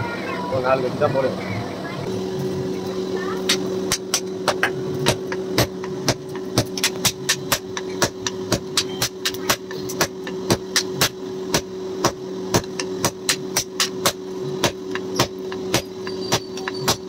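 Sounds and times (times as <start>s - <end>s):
steady hum: 0.0s - 17.0s
hammer striking hot steel on anvil: 3.4s - 17.0s.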